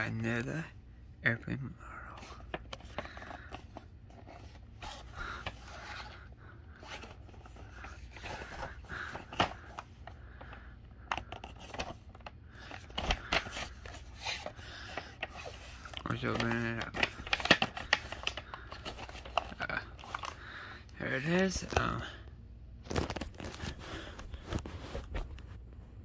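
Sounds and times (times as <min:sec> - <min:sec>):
cardboard rubbing and scraping: 0:22.9 - 0:25.4.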